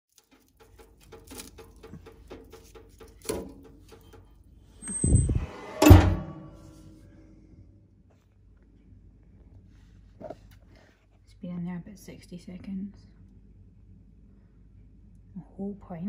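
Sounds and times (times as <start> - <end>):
stove door squeal: 4.8 - 6.8
heavy metal door clunk: 4.9 - 6.8.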